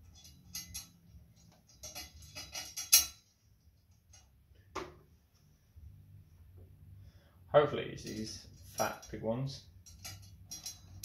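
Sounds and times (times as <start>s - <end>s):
metal bolts clinking: 0.0s - 4.4s, 8.0s - 11.0s.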